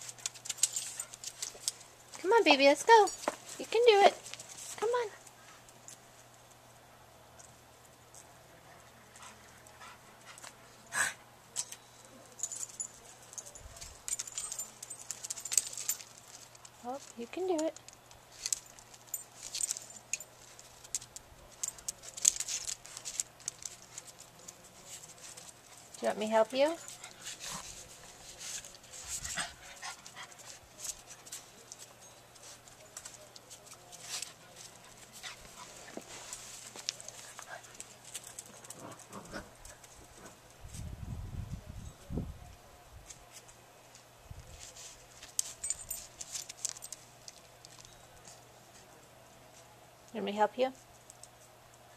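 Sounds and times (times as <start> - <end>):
dog paws scuffing and clicking: 0.0 - 6.6, 12.4 - 40.8, 43.1 - 48.9
faint dog sounds: 7.0 - 17.2.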